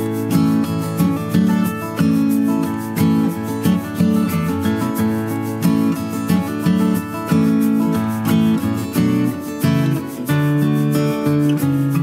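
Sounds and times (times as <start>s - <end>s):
strummed guitar: 0.0s - 12.0s.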